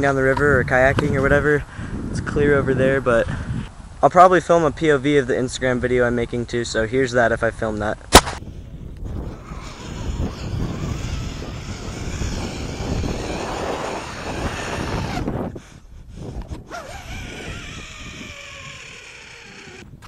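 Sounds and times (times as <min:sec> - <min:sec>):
wind buffeting microphone: 0:00.0 - 0:06.7, 0:08.4 - 0:20.0.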